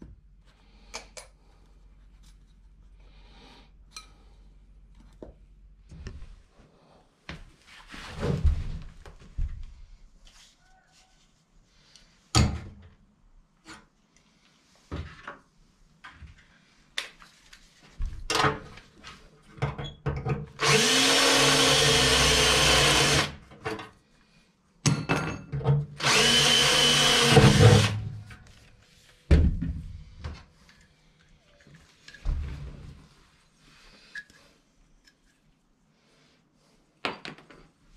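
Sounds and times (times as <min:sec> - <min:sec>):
cordless drill whining: 0:20.6 - 0:23.4, 0:26.0 - 0:28.0.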